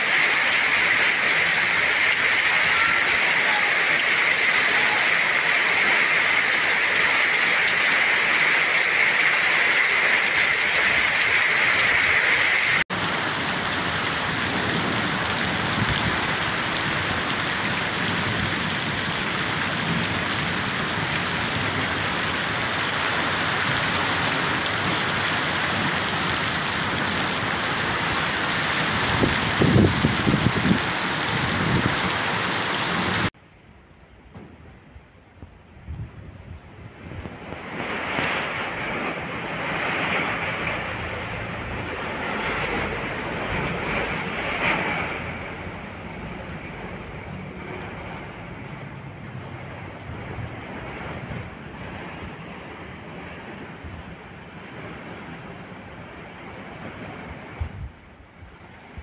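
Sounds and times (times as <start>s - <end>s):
heavy rain pouring: 0.0s - 33.4s, 36.9s - 56.3s
runoff streaming off roof: 0.0s - 33.4s.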